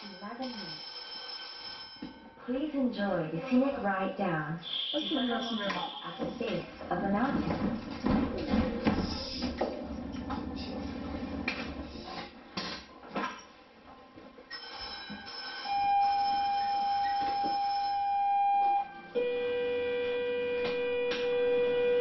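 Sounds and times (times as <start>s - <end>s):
electronic signal tone: 4.6s - 6.7s, 14.5s - 22.0s.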